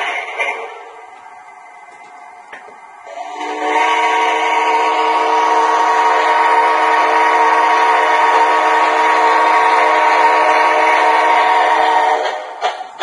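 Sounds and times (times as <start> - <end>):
model train horn: 3.1 - 12.4.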